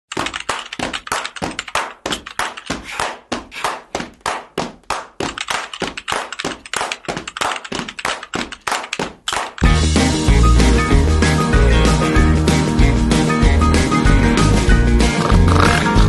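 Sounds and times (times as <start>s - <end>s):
fast typing on laptop keyboard: 0.1s - 2.8s, 5.2s - 9.6s.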